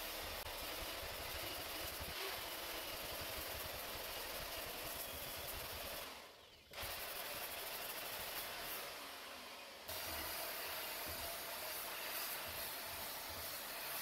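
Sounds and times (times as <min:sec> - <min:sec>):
wire brush tool scrubbing wall: 0:09.9 - 0:14.0.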